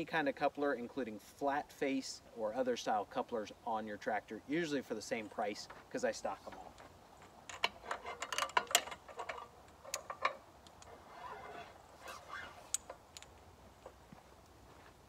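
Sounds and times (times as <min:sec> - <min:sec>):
metal hose fittings clinking: 0:06.5 - 0:11.7
soft rustling: 0:10.1 - 0:15.0.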